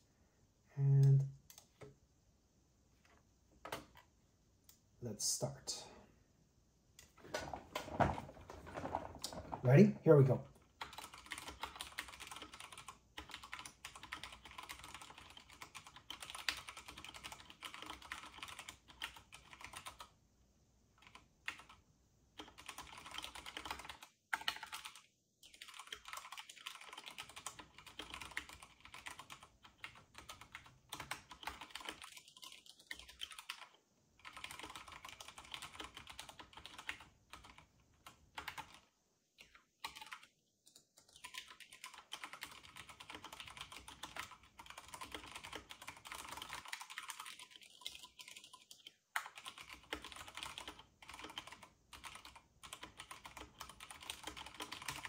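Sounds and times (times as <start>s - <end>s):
fast typing on mechanical keyboard: 10.6s - 20.2s, 20.9s - 55.0s.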